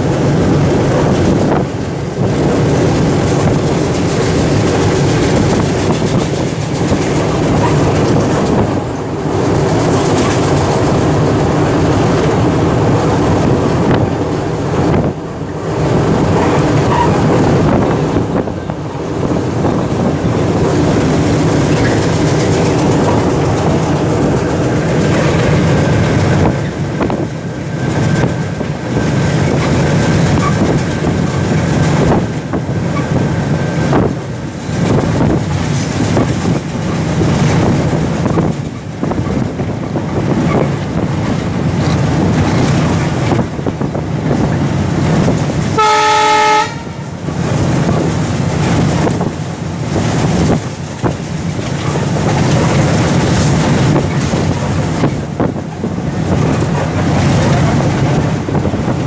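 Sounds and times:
wheels clicking over track: 0:00.0 - 0:45.8, 0:46.9 - 0:59.0
diesel locomotive running: 0:00.0 - 0:59.0
train horn blast: 0:45.7 - 0:47.1.

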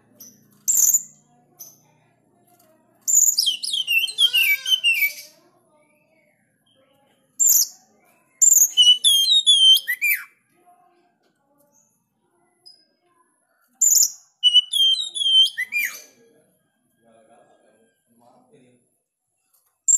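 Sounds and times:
bird singing high whistles: 0:03.1 - 0:05.3, 0:08.4 - 0:10.3, 0:13.8 - 0:16.0.

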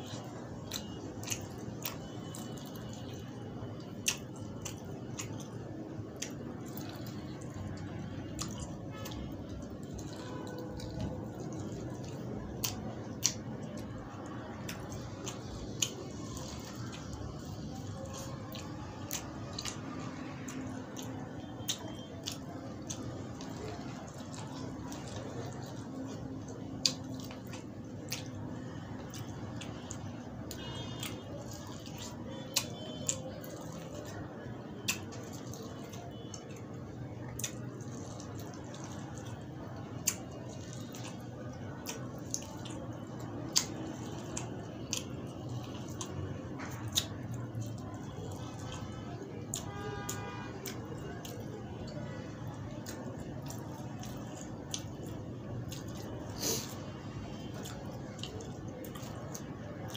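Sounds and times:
low background hum: 0:00.0 - 0:59.9
wet chewing: 0:00.0 - 0:59.9.

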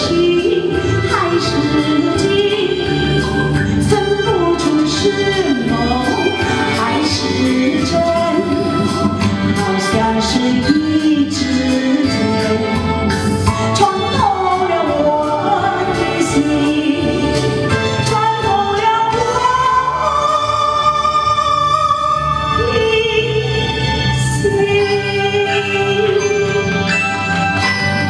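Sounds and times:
woman singing into a microphone: 0:00.0 - 0:27.0
karaoke backing track: 0:00.0 - 0:28.0.

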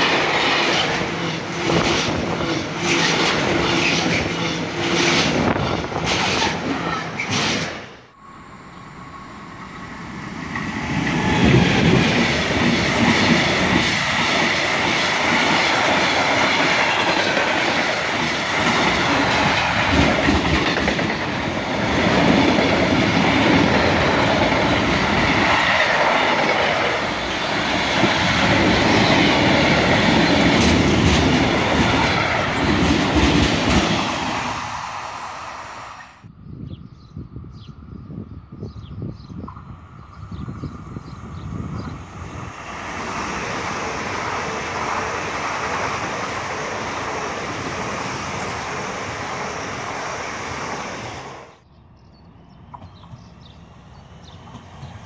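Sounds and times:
freight train wheels clattering: 0:10.4 - 0:34.7.

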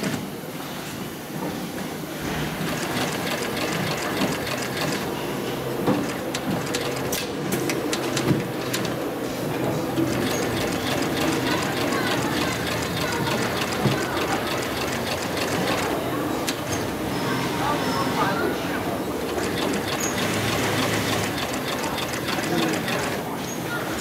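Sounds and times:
sewing machine stitching: 0:02.6 - 0:05.2, 0:09.9 - 0:16.0, 0:19.3 - 0:23.3.

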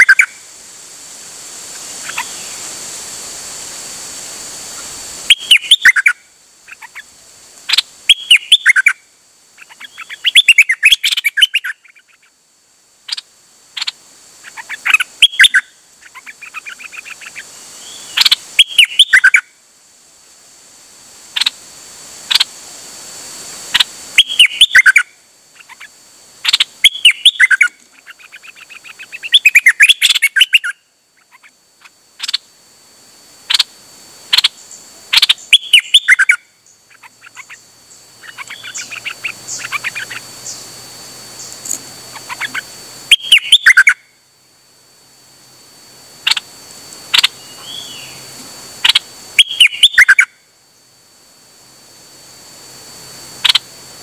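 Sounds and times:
songbird warbling: 0:00.0 - 0:00.4, 0:01.7 - 0:02.6, 0:04.7 - 0:09.0, 0:09.6 - 0:12.4, 0:13.1 - 0:19.5, 0:21.3 - 0:21.6, 0:22.3 - 0:22.5, 0:23.7 - 0:32.5, 0:34.3 - 0:40.7, 0:41.3 - 0:44.0, 0:46.2 - 0:46.5, 0:47.1 - 0:50.4, 0:53.4 - 0:53.7
faint high whine: 0:00.0 - 0:54.0.

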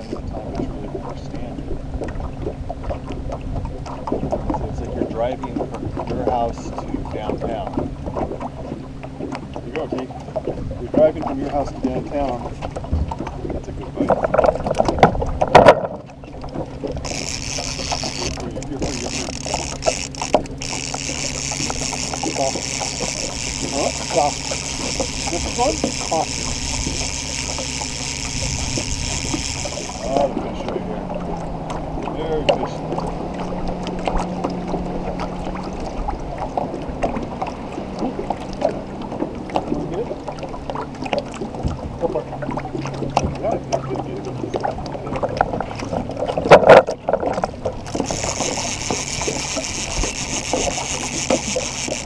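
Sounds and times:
fishing reel clicking whir: 0:00.0 - 0:00.4, 0:16.6 - 0:30.8, 0:47.6 - 0:52.0
fishing rod knocking and clatter: 0:00.0 - 0:02.2, 0:14.0 - 0:30.8, 0:45.1 - 0:52.0
boat motor hum: 0:00.0 - 0:52.0
water slapping against metal hull: 0:00.0 - 0:52.0.

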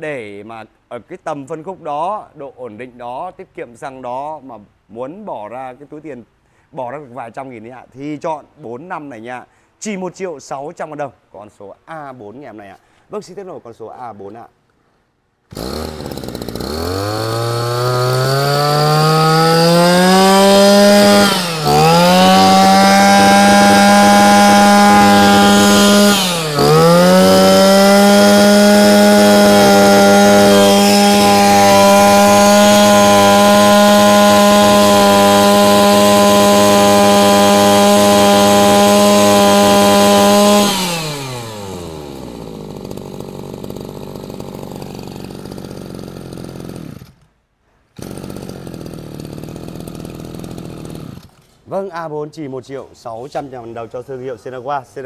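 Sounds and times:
brush cutter engine droning: 0:15.5 - 0:47.3, 0:48.0 - 0:51.6.

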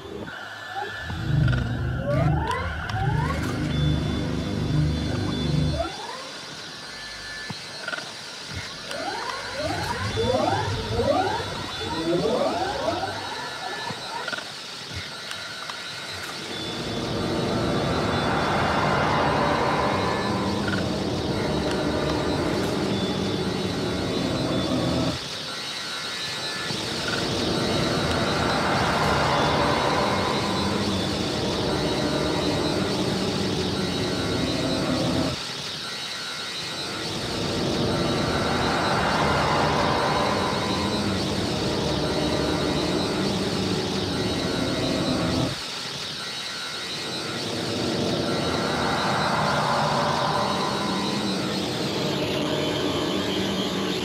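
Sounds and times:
faint steady high tones: 0:00.0 - 0:54.0
noisy hissing electronic texture: 0:00.0 - 0:54.0
faint high tones: 0:46.6 - 0:54.0.

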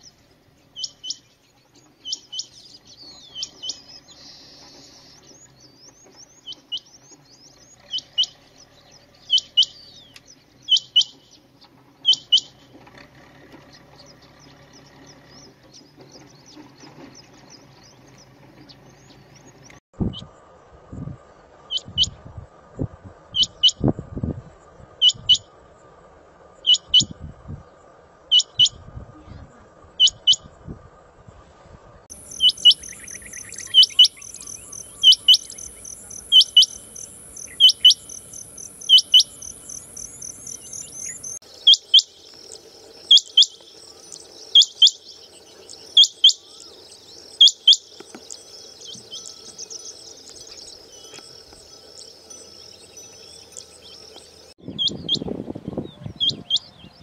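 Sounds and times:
quail calling: 0:12.0 - 0:12.6, 0:32.1 - 0:42.1
steady high hum: 0:32.1 - 0:41.5.

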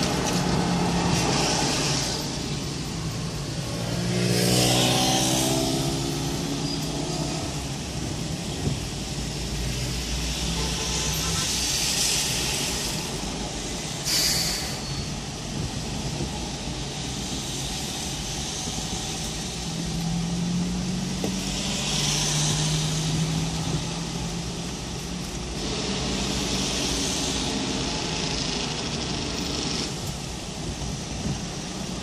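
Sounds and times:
tyre hiss on wet road: 0:00.0 - 0:32.0.

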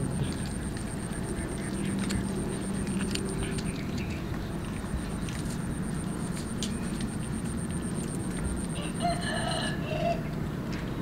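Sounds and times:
low background rumble: 0:00.0 - 0:11.0
kitten chewing and tearing food: 0:00.2 - 0:08.6
wet mouth clicks and smacks: 0:00.3 - 0:05.6.

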